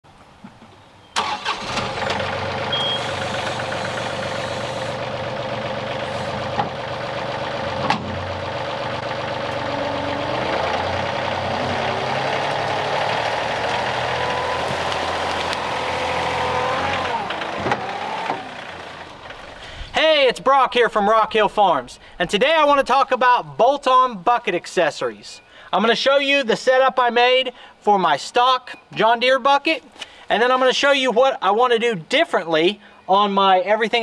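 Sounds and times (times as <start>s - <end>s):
tractor diesel engine running: 1.2s - 22.2s
whine rising in pitch: 9.2s - 19.2s.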